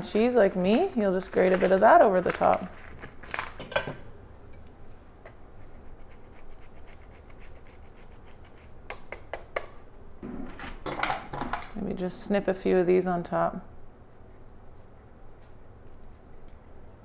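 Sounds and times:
cheese grating scraping: 5.6 - 8.8.

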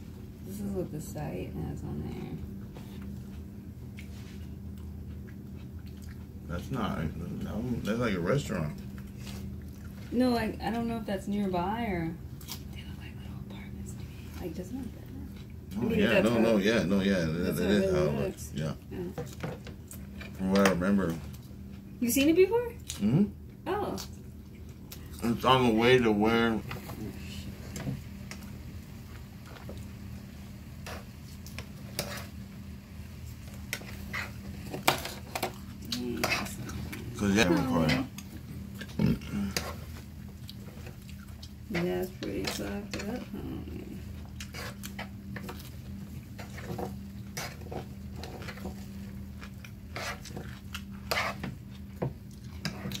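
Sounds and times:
steady low hum: 0.0 - 53.0
chewing: 3.0 - 6.4, 8.6 - 10.1, 12.4 - 12.8, 15.2 - 15.9, 24.0 - 25.4, 33.5 - 53.0.

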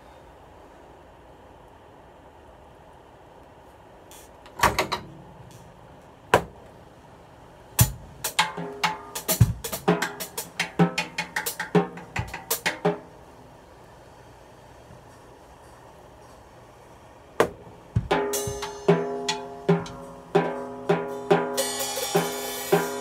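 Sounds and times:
snare and tom strokes: 7.8 - 13.0
bass drum kicks: 9.4 - 9.7, 17.4 - 18.7.

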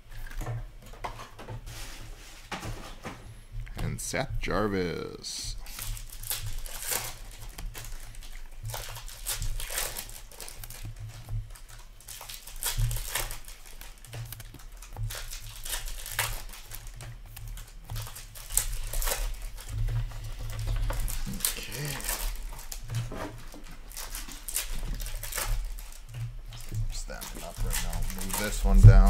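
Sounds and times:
cards rustling and sliding: 5.6 - 29.0.

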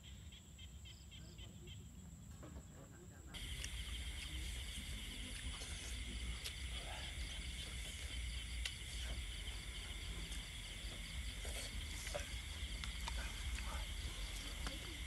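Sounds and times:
night insects chirring: 0.0 - 15.0
faint clicks: 12.0 - 15.0.

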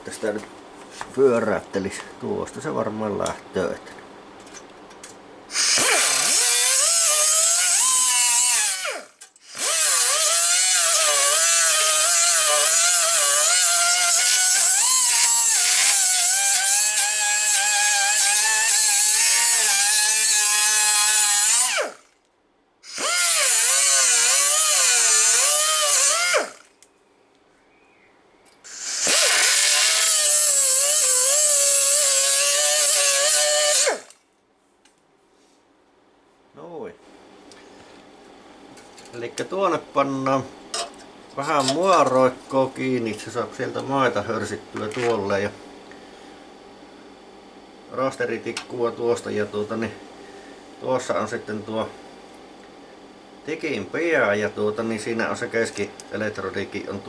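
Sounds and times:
die grinder high whine: 5.5 - 22.2, 22.8 - 26.8, 28.7 - 34.2
air hiss: 28.7 - 29.8.

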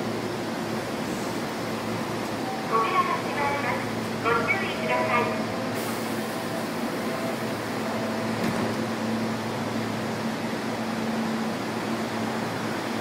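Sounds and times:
train car hum and hiss: 0.0 - 13.0.

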